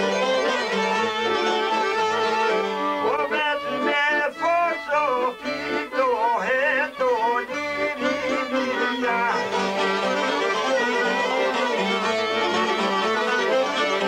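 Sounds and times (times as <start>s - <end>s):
folk ensemble playing: 0.0s - 14.0s
man singing: 3.0s - 11.6s.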